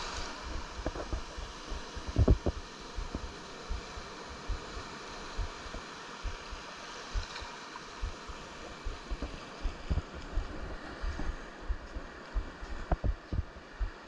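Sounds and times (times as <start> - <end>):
surf washing on beach: 0.0 - 14.0
thumps on microphone: 2.0 - 3.8, 12.7 - 13.5.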